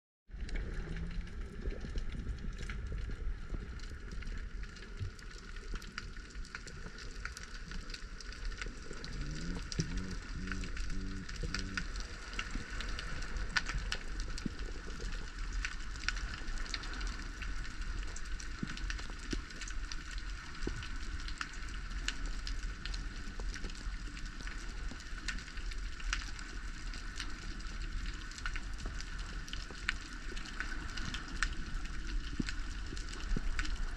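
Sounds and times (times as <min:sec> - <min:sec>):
low underwater rumble: 0:00.3 - 0:25.3
crackle of tiny underwater clicks: 0:00.3 - 0:33.9
pulsing low tone: 0:09.1 - 0:11.9.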